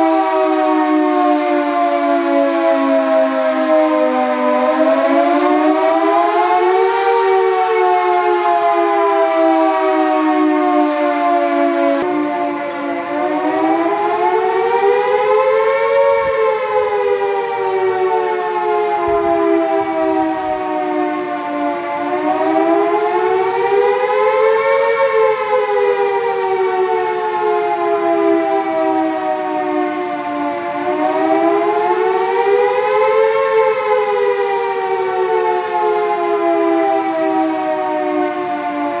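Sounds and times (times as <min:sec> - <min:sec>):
warning siren wailing: 0:00.0 - 0:39.0.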